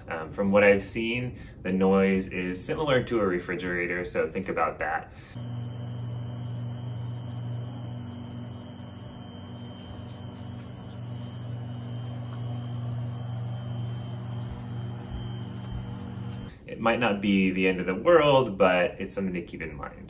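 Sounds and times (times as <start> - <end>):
water heater humming: 5.1 - 16.6.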